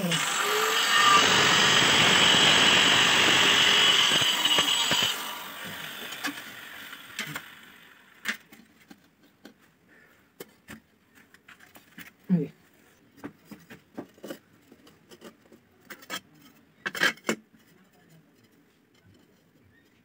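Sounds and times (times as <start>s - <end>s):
power tool whining: 0.0s - 8.2s.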